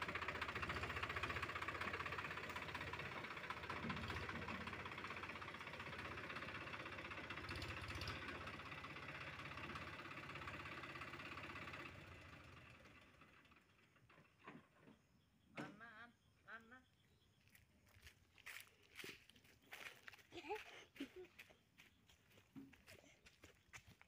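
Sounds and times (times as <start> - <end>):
tractor diesel engine running: 0.0 - 16.3.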